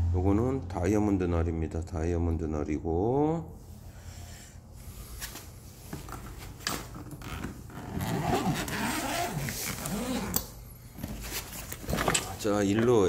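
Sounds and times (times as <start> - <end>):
zipper rasping open: 7.1 - 12.4
fabric case rustling: 10.9 - 12.9.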